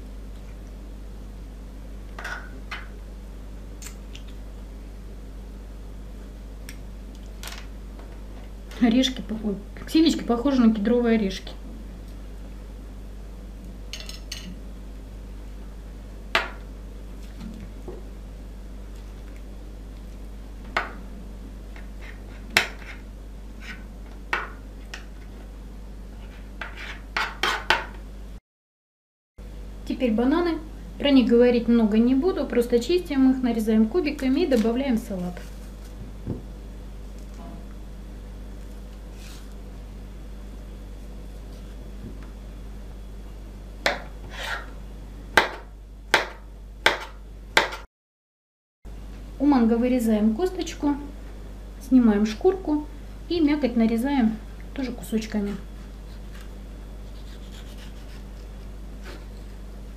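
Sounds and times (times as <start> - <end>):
steady low hum: 0.0 - 28.4, 29.4 - 47.9, 48.9 - 59.9
knife knocking on cutting board: 36.2 - 36.5.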